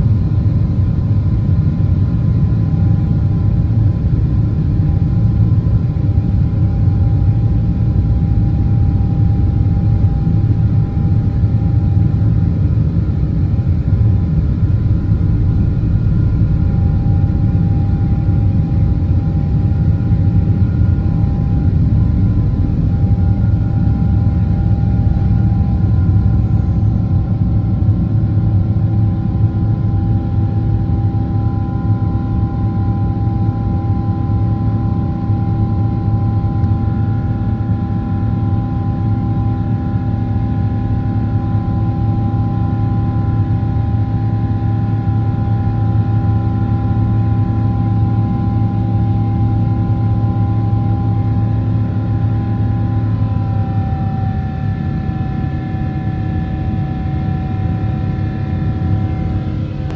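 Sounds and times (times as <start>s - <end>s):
aircraft cabin low rumble: 0.0s - 59.9s.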